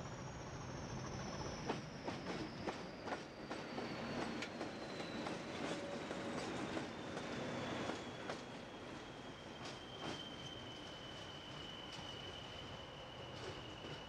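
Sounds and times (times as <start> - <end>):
diesel locomotives rolling past: 0.0 - 14.0
thin high falling whistle: 6.5 - 14.0.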